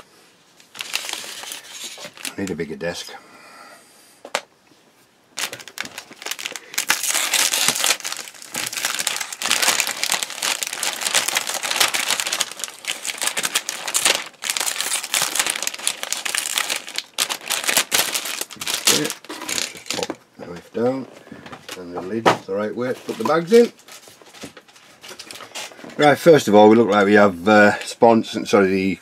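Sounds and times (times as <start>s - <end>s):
plastic bag crinkling: 0.6s - 3.0s, 5.3s - 20.2s, 22.9s - 25.7s.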